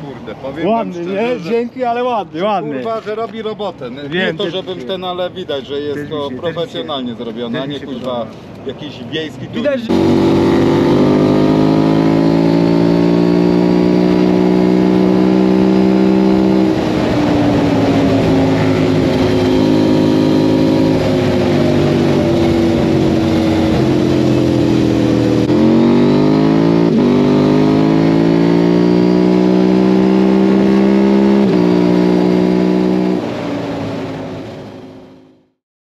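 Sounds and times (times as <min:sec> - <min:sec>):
quad engine running hard: 0:09.9 - 0:34.4.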